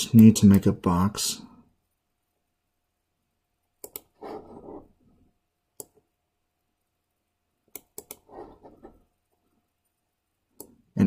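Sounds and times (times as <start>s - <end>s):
computer mouse clicking: 3.8s - 4.8s, 5.8s - 6.0s, 7.7s - 9.0s, 10.6s - 10.8s.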